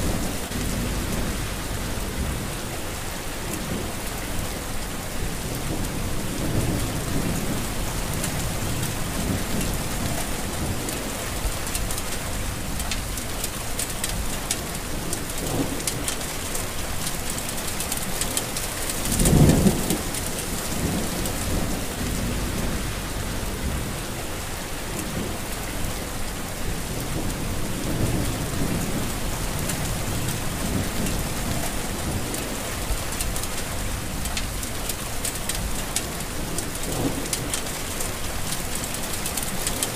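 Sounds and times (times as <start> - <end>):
low rumbles: 0.0 - 4.3, 19.2 - 25.9
heavy rain on leaves: 0.0 - 39.9.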